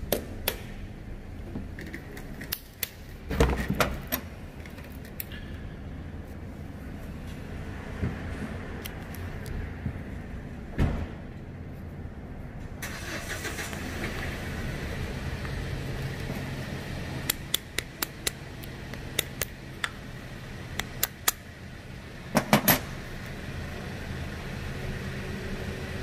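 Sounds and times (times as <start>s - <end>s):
steady low hum: 0.0s - 12.8s, 13.6s - 26.0s
sharp metallic clicks: 17.2s - 20.0s, 20.7s - 21.5s.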